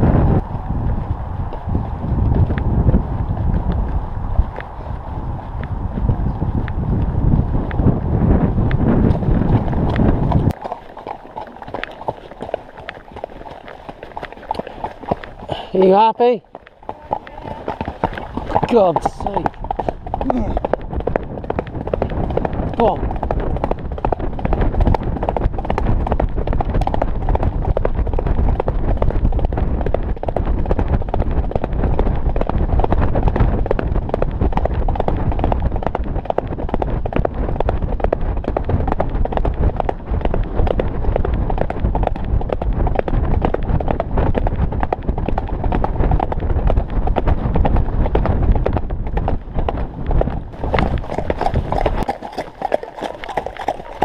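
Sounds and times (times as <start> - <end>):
wind rumble on microphone: 0.0 - 54.0
hoofbeats on gravel: 0.4 - 27.9, 44.4 - 54.0.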